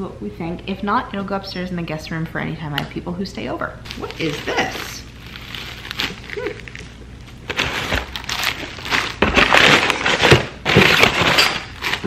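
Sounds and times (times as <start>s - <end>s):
packaging crinkling and rustling: 3.9s - 12.0s.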